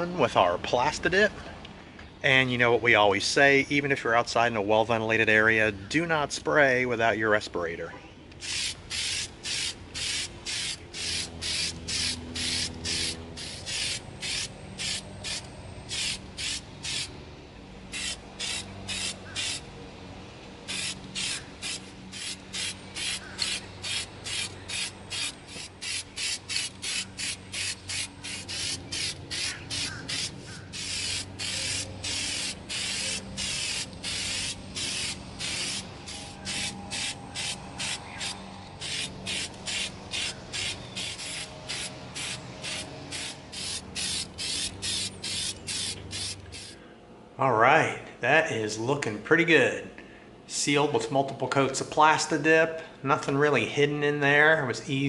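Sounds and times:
aerosol can spraying bursts: 8.4 - 17.1, 17.9 - 19.6, 20.7 - 46.8.

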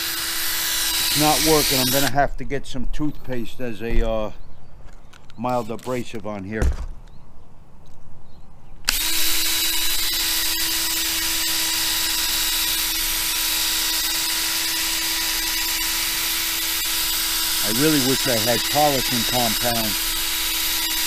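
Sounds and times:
power drill whining: 0.0 - 2.1, 8.9 - 21.0.

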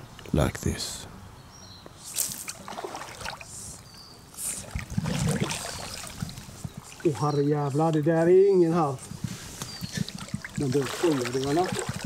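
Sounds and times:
water swishing and splashing: 2.1 - 8.1, 9.2 - 12.0.

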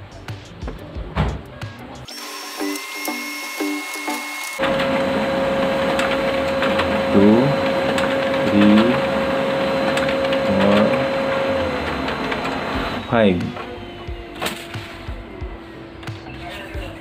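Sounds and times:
printer motor whine: 2.1 - 16.9
paper sheets sweeping through: 4.6 - 13.6.

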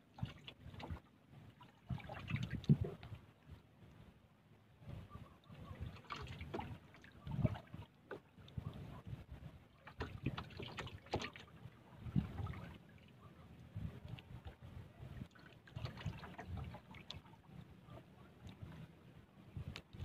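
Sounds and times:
water lapping against boat hull: 0.0 - 3.9, 4.9 - 20.0
wind on microphone: 1.9 - 3.6, 4.7 - 7.8, 8.4 - 20.0
soft knocks of boat: 9.9 - 12.8.

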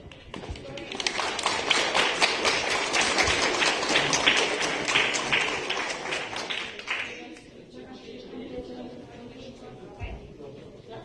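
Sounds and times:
audience applauding: 0.5 - 7.3.

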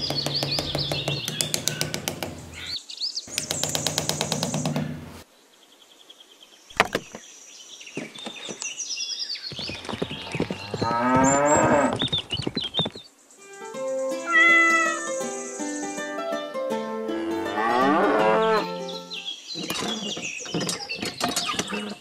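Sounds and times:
rapid tapping: 0.0 - 5.2
cow mooing: 10.8 - 11.9, 17.4 - 18.8.

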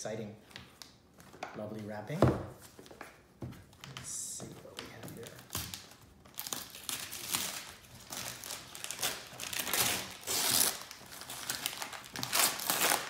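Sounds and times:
wrapping paper crinkling and tearing: 5.2 - 13.0.

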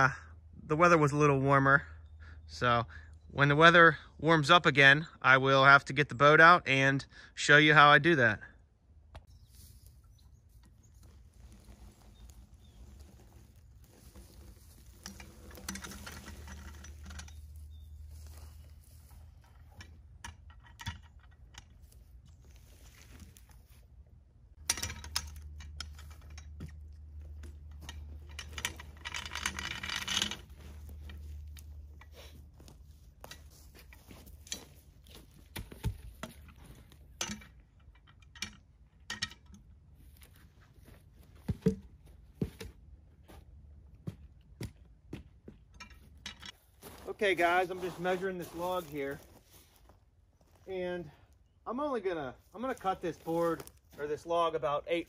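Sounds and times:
footsteps in dry grass: 9.2 - 16.5, 17.4 - 19.8, 21.8 - 24.0, 30.4 - 37.1, 46.5 - 51.4, 52.4 - 54.2
wooden log knocks and scrapes: 40.3 - 43.4.

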